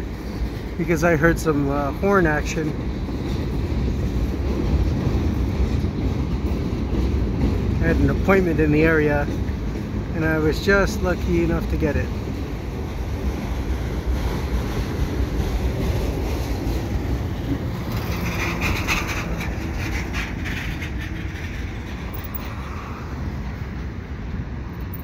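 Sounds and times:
train wheels rumbling on rails: 0.0 - 25.0
bus driving by: 15.1 - 25.0.

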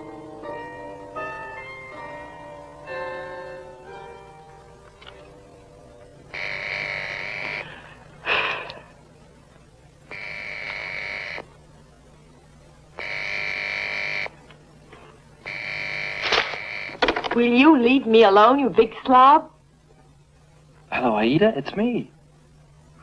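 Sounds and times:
telephone ringing: 6.3 - 7.7, 10.1 - 11.4, 13.0 - 14.4, 15.5 - 17.2.

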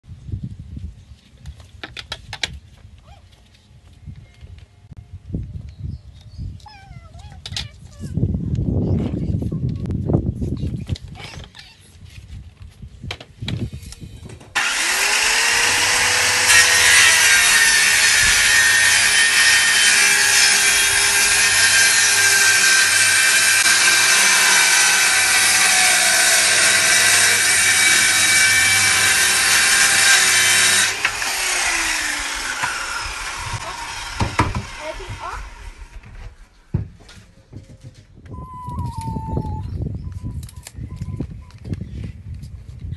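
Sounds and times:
circular saw cutting wood: 14.6 - 36.4.

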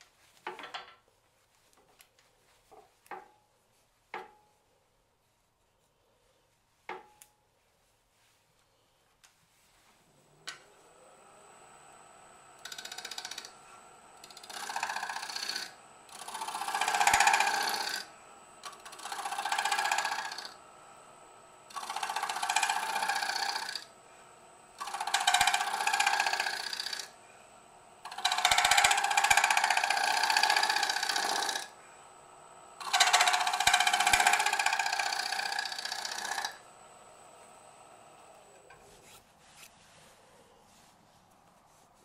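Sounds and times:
gouge cutting wood on lathe: 11.2 - 38.6.

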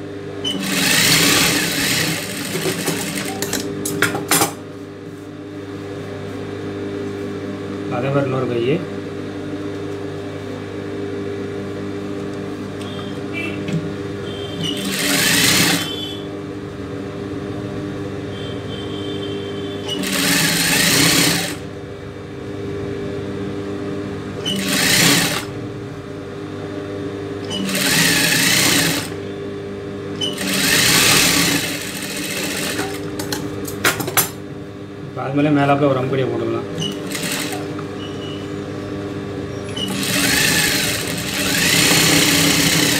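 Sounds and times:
sewing machine stitching: 0.5 - 3.7, 14.7 - 16.0, 19.9 - 21.6, 24.5 - 25.5, 27.5 - 29.2, 30.2 - 33.1, 36.8 - 37.7, 39.8 - 42.9
motor humming: 12.2 - 16.3, 18.3 - 26.1, 27.4 - 33.9, 36.8 - 42.9.

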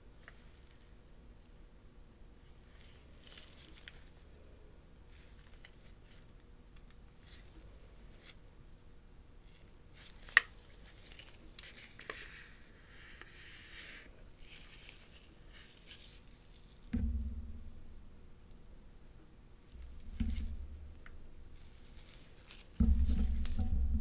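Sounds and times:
gimbal handling rubbing and taps: 16.8 - 18.0, 19.7 - 24.0.

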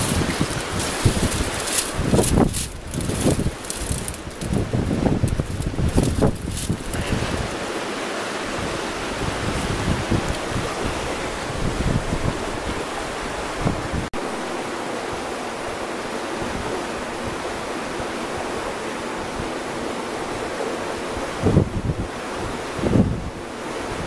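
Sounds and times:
wind buffeting microphone: 0.0 - 14.1, 21.1 - 24.0
river water rushing: 0.0 - 24.0.

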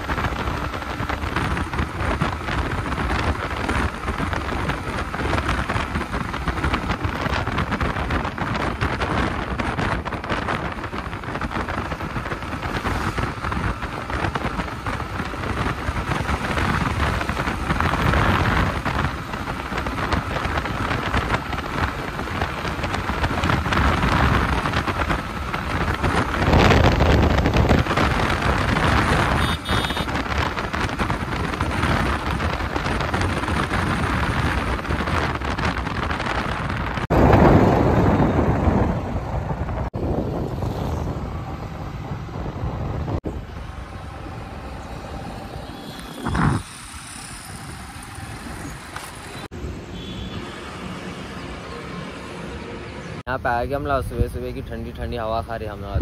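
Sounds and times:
wind rush on microphone: 0.0 - 56.0.

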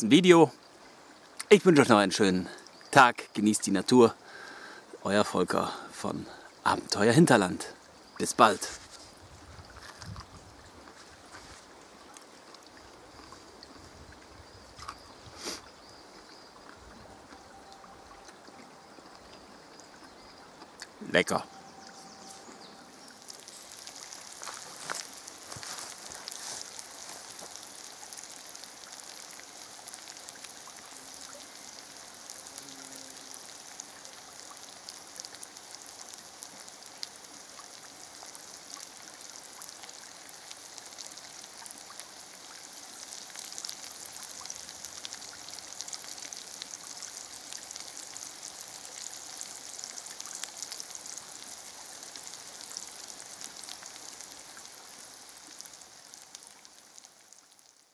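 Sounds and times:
oil sizzling in a pan: 21.9 - 57.9.

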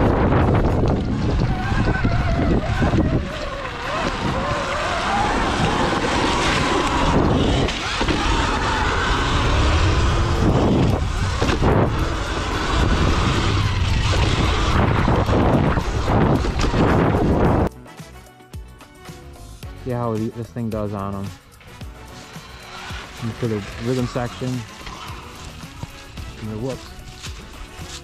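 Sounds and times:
electric motor whine: 0.0 - 17.7, 21.4 - 28.0
tyre noise: 0.0 - 17.7, 19.9 - 28.0
wind buffeting microphone: 0.0 - 17.7.

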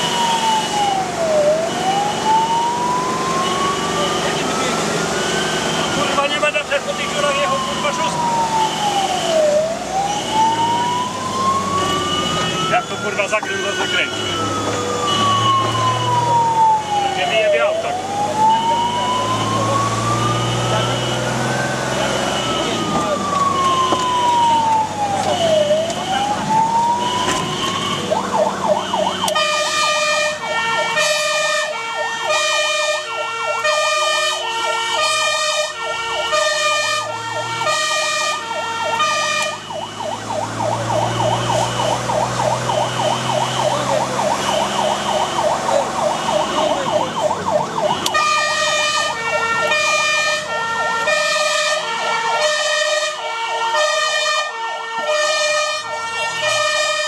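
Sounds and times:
truck engine drone: 0.0 - 53.2
fire engine siren wailing and yelping: 0.0 - 57.0
two-tone horn: 31.0 - 39.6.

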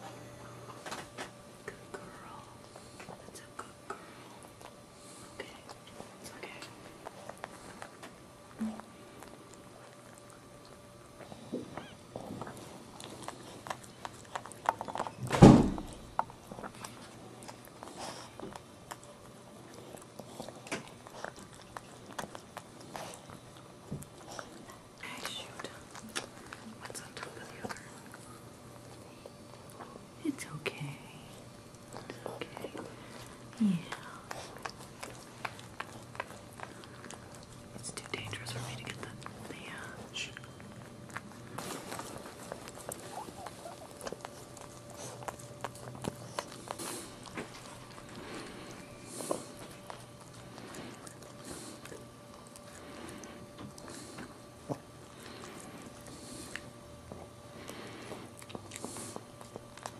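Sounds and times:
dog licking puppy: 1.7 - 59.9.

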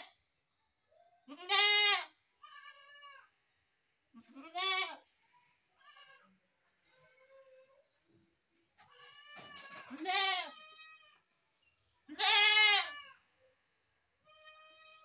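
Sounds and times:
goat bleating: 1.3 - 3.3, 4.2 - 5.0, 5.8 - 6.3, 8.8 - 11.2, 12.1 - 13.2, 14.2 - 15.0.

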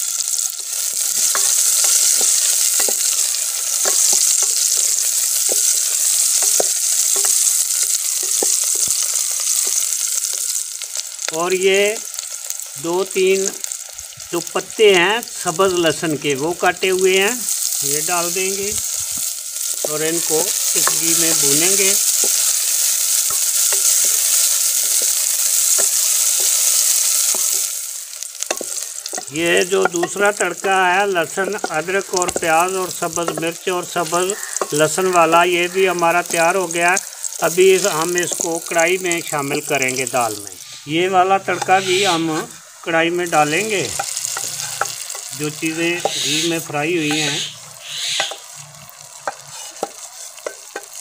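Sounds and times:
vegetables sizzling in hot oil: 0.0 - 51.0
wooden spoon scraping a pan: 43.9 - 51.0
wooden spoon knocking against pan: 48.2 - 48.5.

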